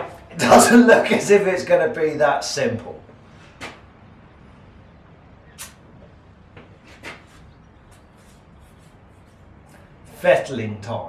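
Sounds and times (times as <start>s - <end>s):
steady low hum: 0.0s - 11.0s
faint brief clicks: 5.5s - 6.1s.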